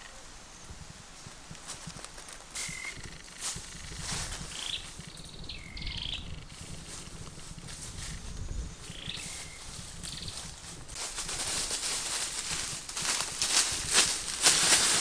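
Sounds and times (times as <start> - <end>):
bird calling: 2.5 - 7.0, 8.0 - 10.5
dry leaves crunching and rustling: 6.6 - 15.0.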